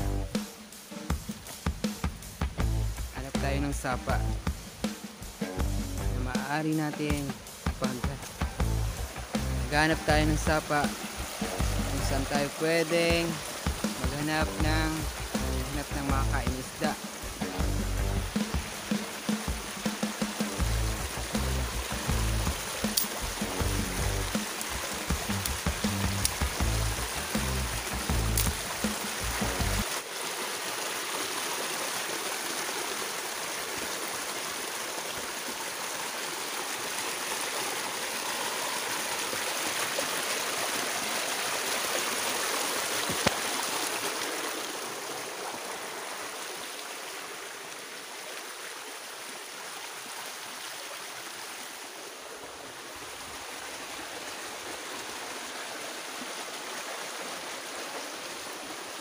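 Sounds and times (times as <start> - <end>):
stream running over rocks: 0.0 - 59.0.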